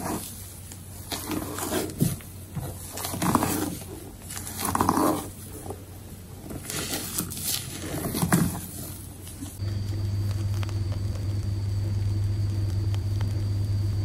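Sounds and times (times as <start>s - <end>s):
spatula scraping wet batter: 0.0s - 9.6s
low hum: 9.5s - 14.0s.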